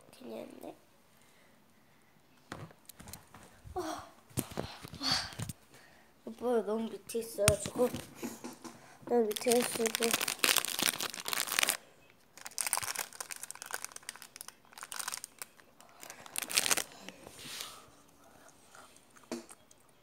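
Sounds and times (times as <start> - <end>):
crinkling and rustling: 7.4 - 17.8.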